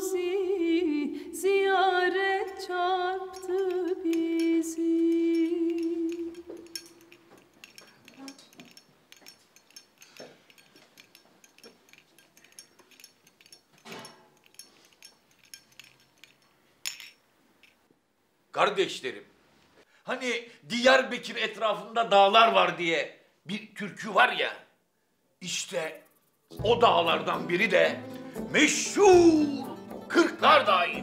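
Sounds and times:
glasses clinking: 0:03.3 - 0:17.9.

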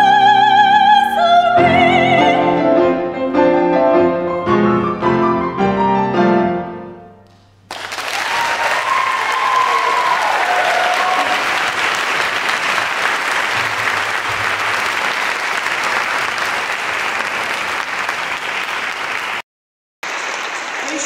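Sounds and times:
voice and piano notes: 0:00.0 - 0:07.3
audience applauding: 0:07.6 - 0:19.4, 0:20.0 - 0:21.0.

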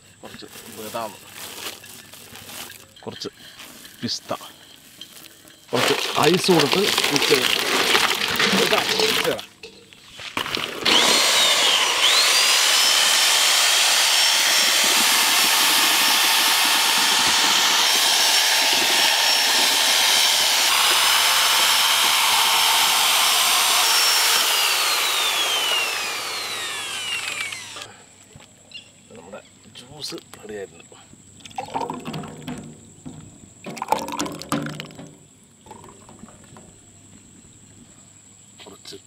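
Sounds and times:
mixer grinder motor whine: 0:05.8 - 0:09.4, 0:10.4 - 0:27.9.

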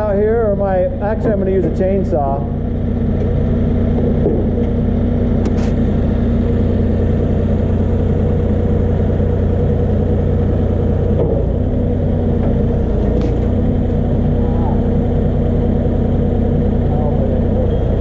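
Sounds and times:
forklift engine humming: 0:00.0 - 0:18.0.

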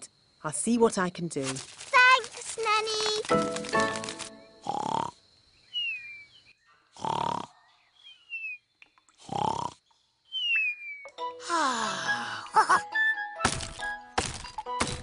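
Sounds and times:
cartoon snoring: 0:04.6 - 0:05.2, 0:07.0 - 0:07.6, 0:09.2 - 0:09.8
thin falling whistle: 0:10.3 - 0:11.2.

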